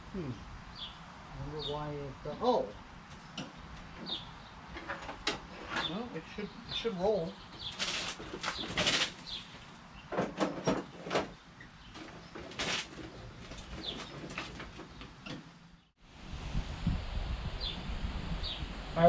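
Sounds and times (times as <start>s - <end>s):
small birds chirping: 0.1s - 16.0s
lawn tractor clunking and rattling: 2.6s - 15.8s.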